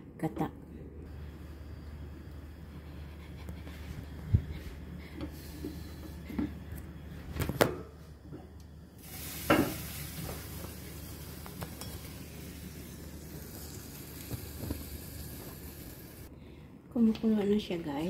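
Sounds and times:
milk boiling and hissing: 8.0s - 16.3s.

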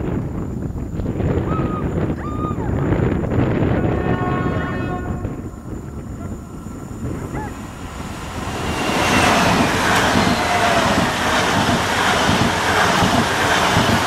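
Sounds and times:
wheels rushing on rails: 2.8s - 14.0s
faint whine: 3.0s - 12.0s
electric train passing: 3.2s - 14.0s.

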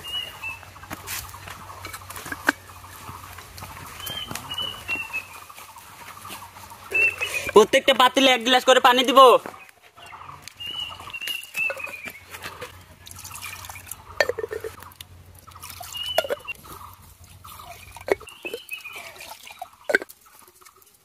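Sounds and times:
clay lids clinking: 1.8s - 2.7s, 11.6s - 12.8s, 14.2s - 14.8s, 16.2s - 16.6s, 17.9s - 18.7s, 19.8s - 20.1s
water pouring and splashing: 11.6s - 21.0s.

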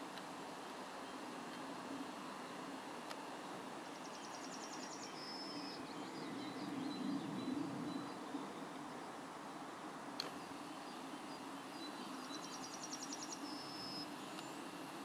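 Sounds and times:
small birds singing: 0.0s - 15.0s.

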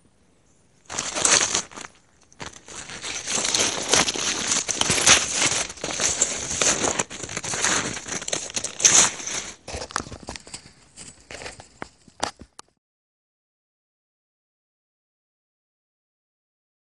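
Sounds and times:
snowshoes crunching through snow: 0.9s - 12.4s.

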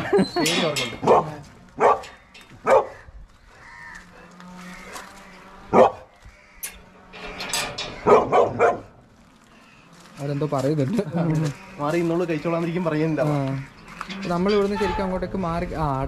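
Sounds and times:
dogs barking: 1.0s - 3.2s, 5.7s - 6.2s, 8.0s - 9.0s.

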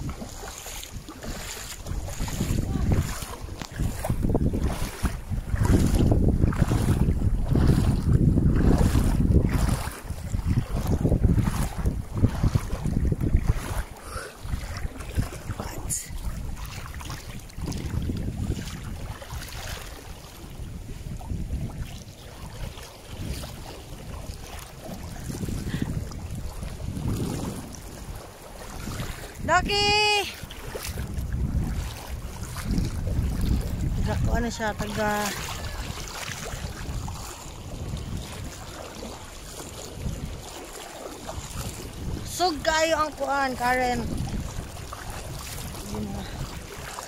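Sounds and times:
river water flowing and lapping: 0.0s - 47.0s
wind buffeting microphone: 0.0s - 47.0s.

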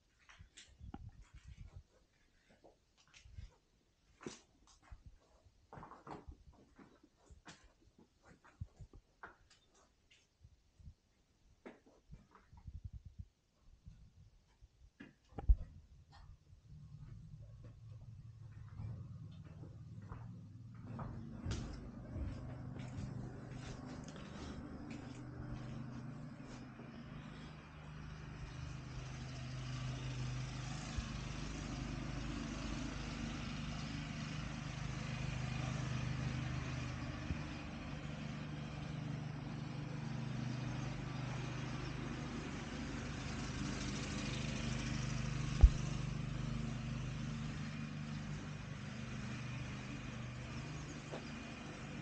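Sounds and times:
low motor hum: 15.3s - 52.0s.

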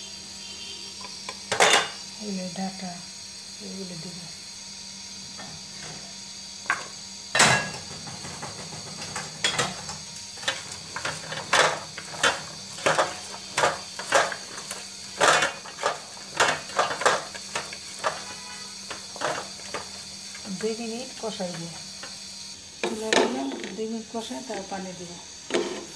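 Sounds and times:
faint sizzle: 0.0s - 25.9s
stirring vegetables in metal pot: 7.8s - 20.6s.

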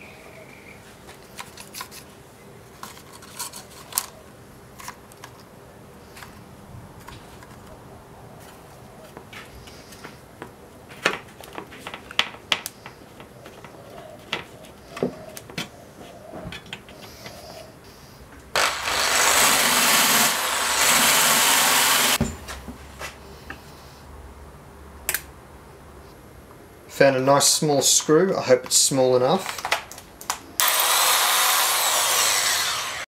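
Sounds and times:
electric drill grinding metal: 18.6s - 22.2s, 30.6s - 33.0s.

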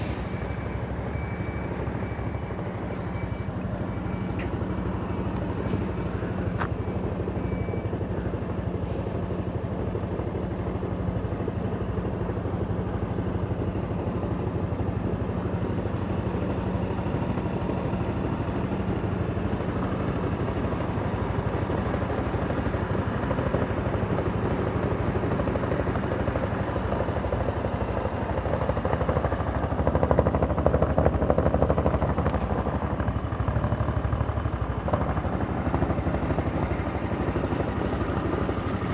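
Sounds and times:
scooter engine idling: 9.6s - 38.9s.

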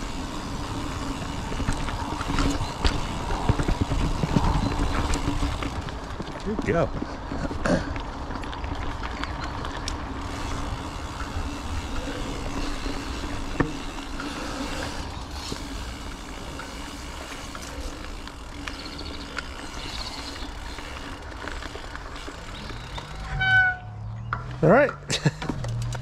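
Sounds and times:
bike clicks: 0.0s - 26.0s
bike tyres rumbling and rattling: 0.0s - 26.0s.

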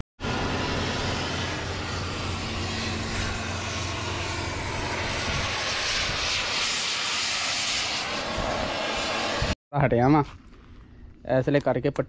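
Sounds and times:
steady low hum: 0.2s - 9.5s
torch flame hissing: 0.2s - 9.6s.

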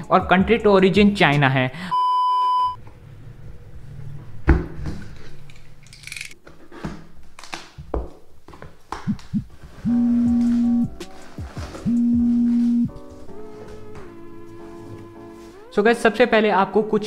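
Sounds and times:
steady low musical note: 9.2s - 16.1s.

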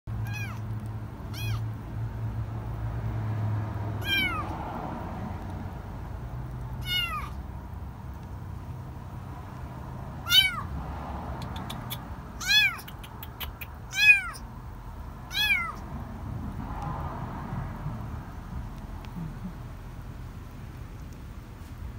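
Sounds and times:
kitten meowing: 0.2s - 0.7s, 1.3s - 1.7s, 4.0s - 4.5s, 6.8s - 7.4s, 10.2s - 10.7s, 11.4s - 14.5s, 15.3s - 15.8s.

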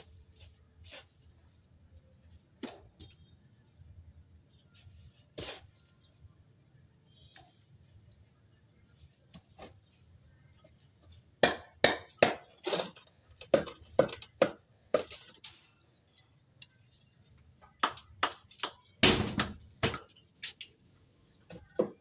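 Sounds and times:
hammer knocking concrete block: 11.4s - 12.5s, 13.5s - 15.1s.

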